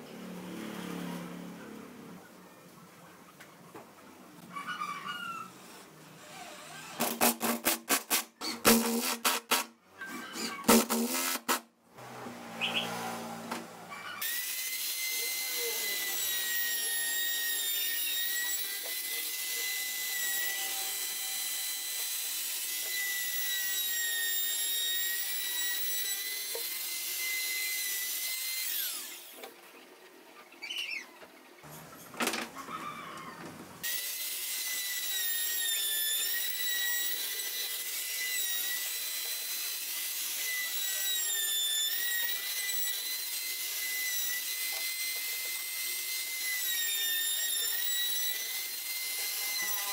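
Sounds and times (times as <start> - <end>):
router whining: 5.6 - 7.3, 8.4 - 29.5, 33.8 - 49.9.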